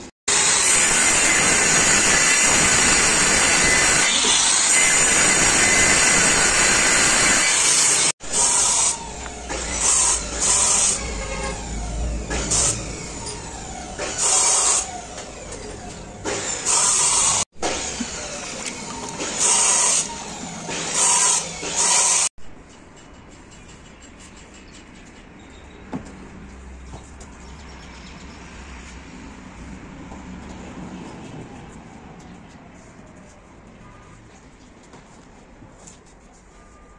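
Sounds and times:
circular saw cutting: 0:00.3 - 0:22.3.

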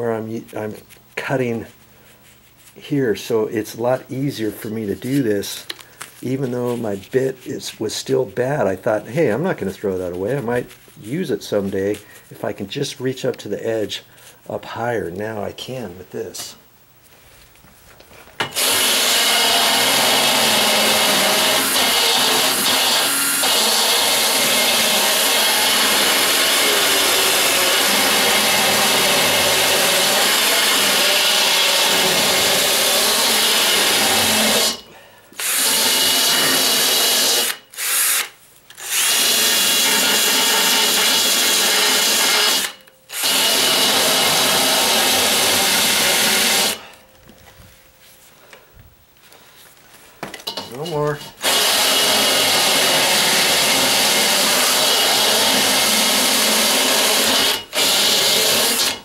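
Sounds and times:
cordless drill grinding: 0:18.4 - 0:34.8, 0:35.4 - 0:46.8, 0:51.4 - 0:59.0.

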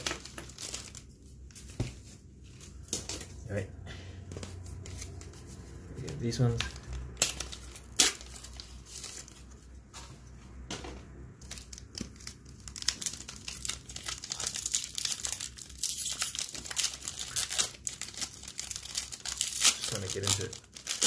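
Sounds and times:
foil wrapper crinkling and tearing: 0:00.0 - 0:01.2, 0:06.2 - 0:09.5, 0:11.4 - 0:21.0.

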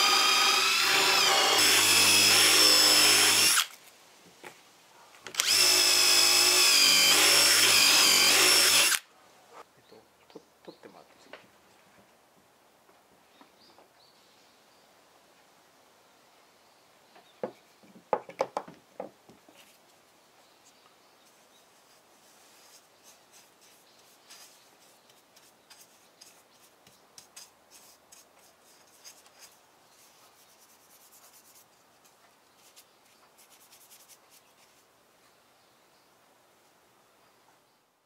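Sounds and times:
brush strokes on wood: 0:20.6 - 0:34.9.

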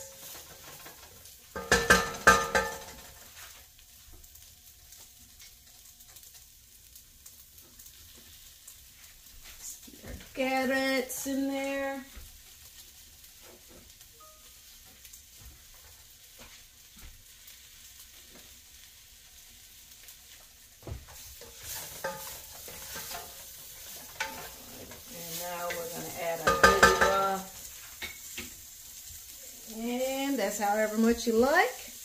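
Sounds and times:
vegetables sizzling in a pot: 0:00.0 - 0:32.0
wooden spoon scraping a pot: 0:21.1 - 0:28.6.

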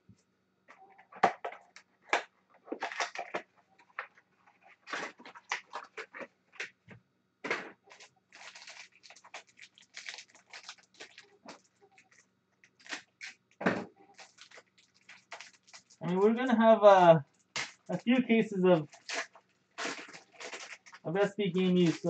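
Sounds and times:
foil pack crinkling: 0:02.8 - 0:06.7, 0:07.8 - 0:16.3, 0:17.2 - 0:22.0.

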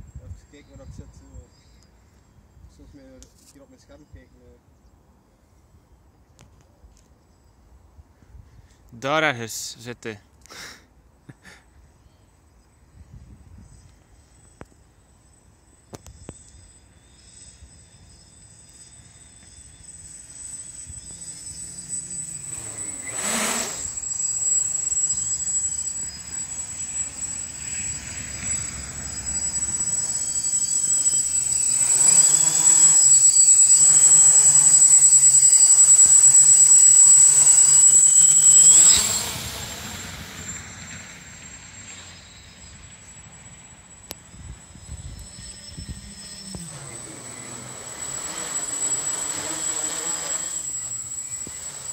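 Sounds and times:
thin high whine: 0:11.2 - 0:51.9
quadcopter buzzing hum: 0:13.7 - 0:51.9.

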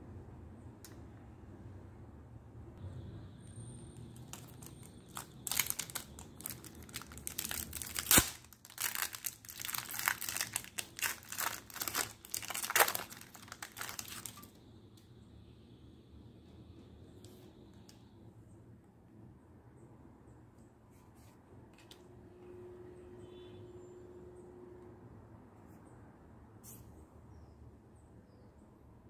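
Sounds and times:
foil wrapper crinkling: 0:04.0 - 0:14.6
foil tearing snap: 0:04.3 - 0:14.4.

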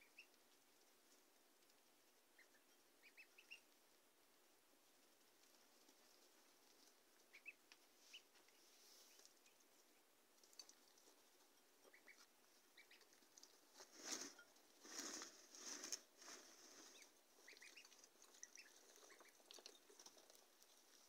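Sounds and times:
ducklings peeping: 0:00.0 - 0:00.6, 0:02.2 - 0:03.8, 0:05.4 - 0:13.8, 0:16.7 - 0:21.0
rustling: 0:04.8 - 0:21.0.

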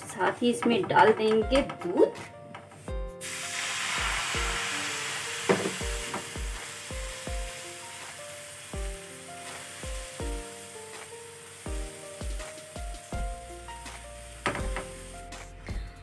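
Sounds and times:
milk sizzling in a pan: 0:03.2 - 0:15.3.

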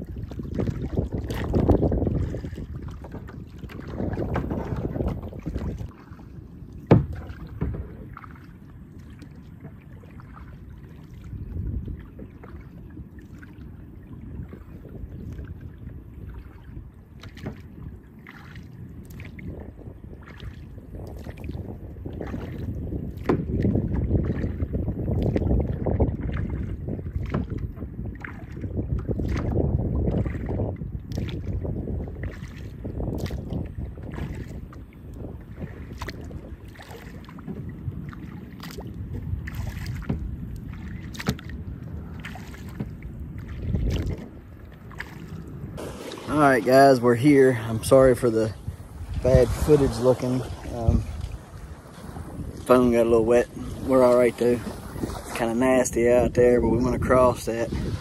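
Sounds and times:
paddle splashes: 0:00.0 - 0:58.0
wind rumble on microphone: 0:00.0 - 0:58.0
sharp knocks: 0:06.9 - 0:07.8
steady low rumble: 0:39.0 - 0:58.0.

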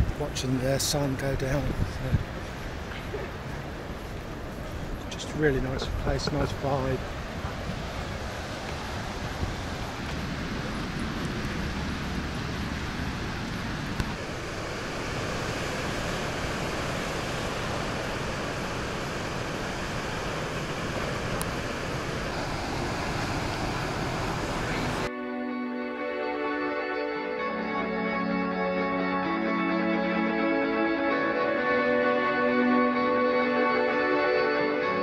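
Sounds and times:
ocean surf breaking: 0:00.0 - 0:25.1
wind on microphone: 0:01.4 - 0:25.1.

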